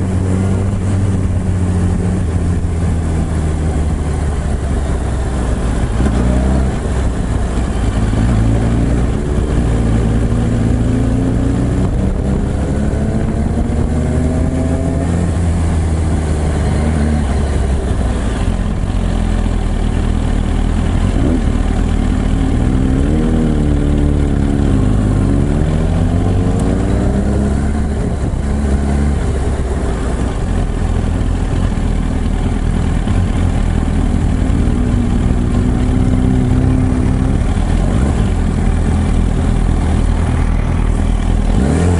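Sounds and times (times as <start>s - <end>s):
motorcycle engine revving: 0.0s - 41.9s.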